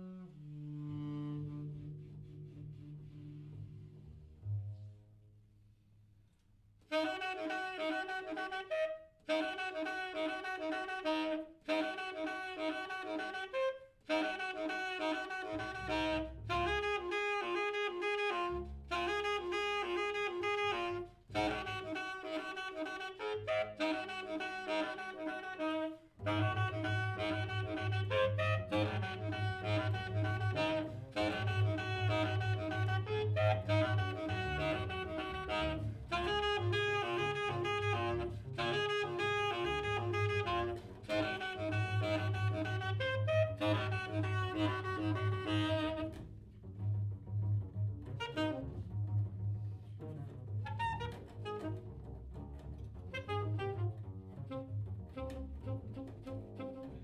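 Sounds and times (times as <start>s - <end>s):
saxophone playing short phrases: 6.9s - 46.1s.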